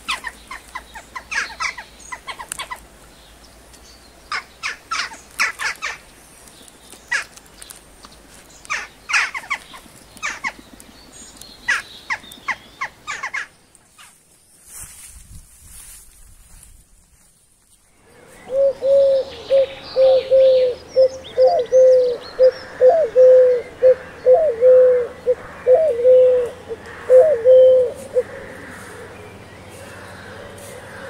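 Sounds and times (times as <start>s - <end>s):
small birds chirping: 0.0s - 15.1s, 17.2s - 31.0s
dove cooing: 18.2s - 31.0s.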